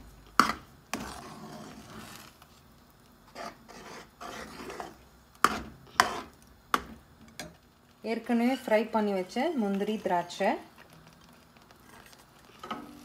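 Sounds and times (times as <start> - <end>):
spoon stirring thick food: 0.2 - 2.6, 3.3 - 7.5
spoon scraping pot: 0.4 - 2.3, 3.3 - 6.4.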